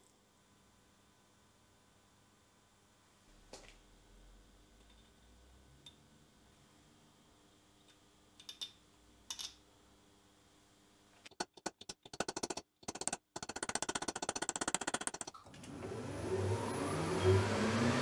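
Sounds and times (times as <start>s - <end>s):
machine motor humming: 15.4s - 18.0s.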